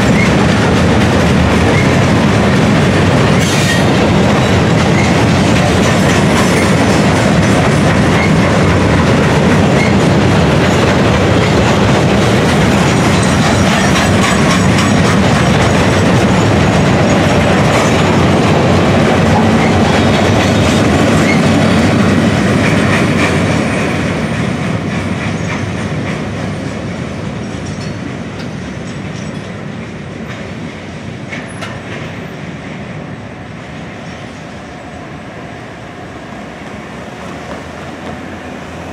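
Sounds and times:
wheels clattering over rail joints: 0:00.0 - 0:29.6
freight train rumble: 0:00.0 - 0:38.9.

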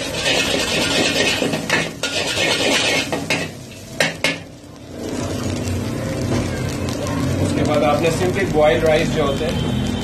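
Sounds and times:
metal spatula scraping wok: 0:00.0 - 0:04.4
food sizzling: 0:00.0 - 0:10.0.

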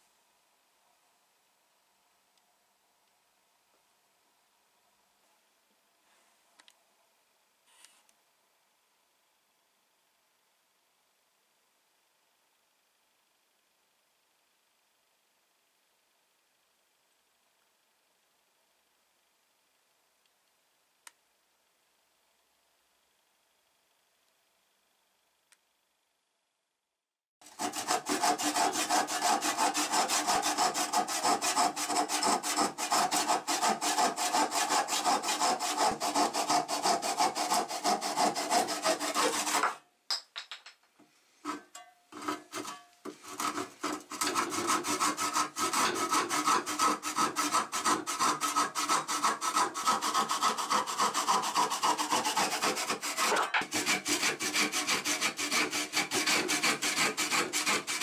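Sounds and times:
hand saw cutting wood: 0:27.4 - 0:39.8, 0:41.4 - 0:58.0.

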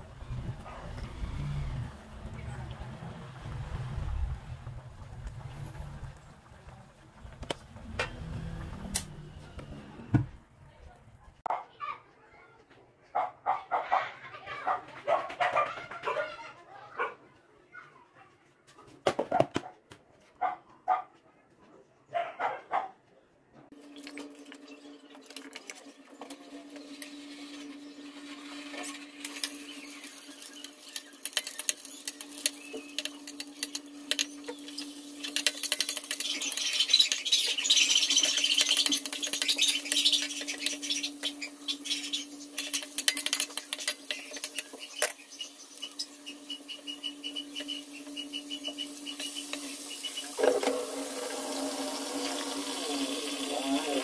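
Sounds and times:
food sizzling in wok: 0:28.2 - 0:46.4, 0:47.6 - 0:54.0
steady hum: 0:36.3 - 0:54.0.

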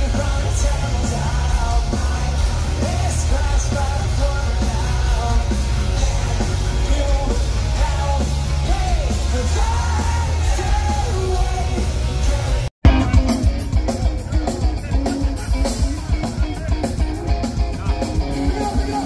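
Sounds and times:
booming bass: 0:00.0 - 0:18.9
live rock band: 0:00.0 - 0:19.0
person singing: 0:17.9 - 0:19.0.

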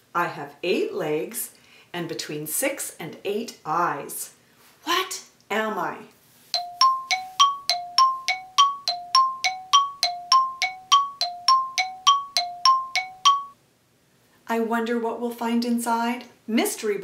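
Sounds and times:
two-note chime dings: 0:06.6 - 0:13.6.

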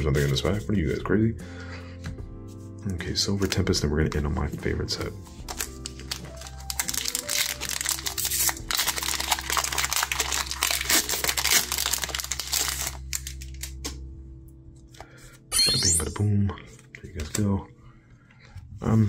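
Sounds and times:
quiet background music: 0:00.0 - 0:19.0
foil wrapper crinkling and tearing: 0:05.4 - 0:13.9.

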